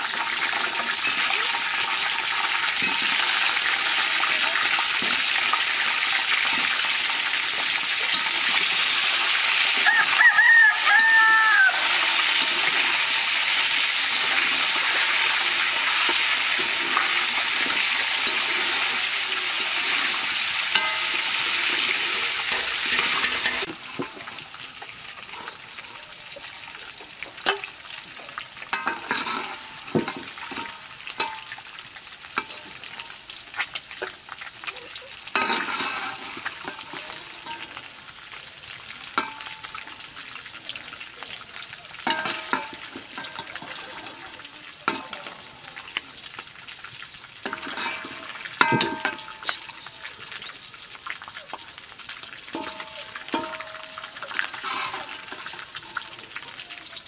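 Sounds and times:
food sizzling in hot oil: 0.0s - 57.0s
spoon stirring against pot: 11.8s - 25.6s, 28.7s - 31.6s, 35.3s - 37.9s, 42.0s - 46.0s, 47.4s - 49.9s, 52.5s - 56.6s.

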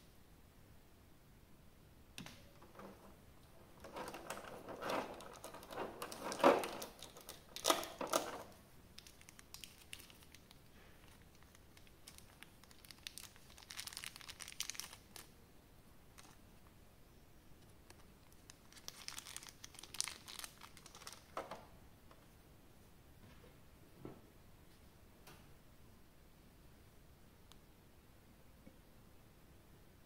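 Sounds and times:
packaging crinkling and crackling: 2.6s - 15.3s, 16.2s - 16.4s, 17.9s - 21.6s.

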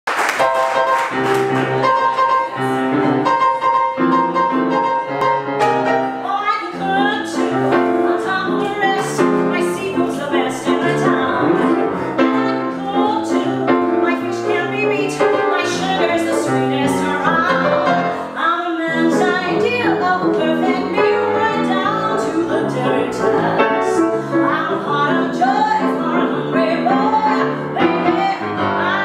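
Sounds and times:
grand piano playing: 0.2s - 29.0s
woman singing with vibrato: 6.2s - 29.0s.

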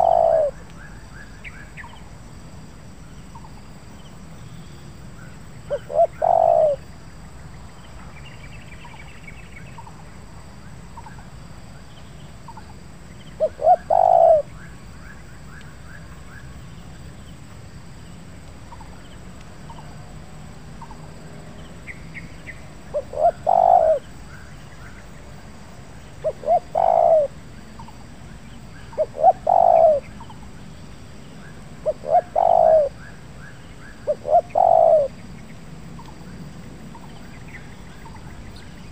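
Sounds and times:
dove cooing: 0.0s - 0.6s, 5.7s - 6.8s, 13.4s - 14.6s, 22.9s - 24.1s, 26.2s - 27.4s, 28.9s - 30.3s, 31.8s - 33.1s, 34.0s - 35.2s.

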